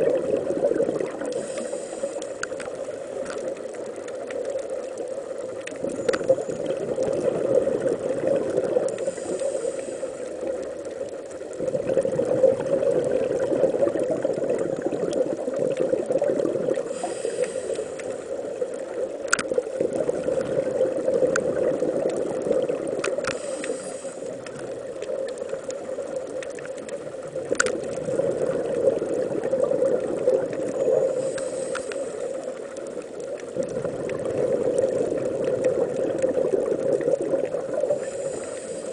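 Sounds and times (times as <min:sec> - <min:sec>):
soft high hiss: 0:00.0 - 0:11.6, 0:16.2 - 0:27.5, 0:29.2 - 0:33.6, 0:36.7 - 0:38.9
sharp underwater clicks: 0:01.0 - 0:07.4, 0:19.2 - 0:19.7, 0:21.2 - 0:28.1, 0:30.2 - 0:37.4.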